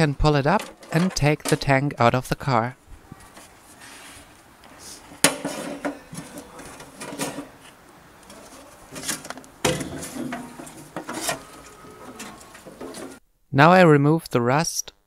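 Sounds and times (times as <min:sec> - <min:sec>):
metal fuel tank knocks and scrapes: 0:05.2 - 0:07.6, 0:08.9 - 0:11.5.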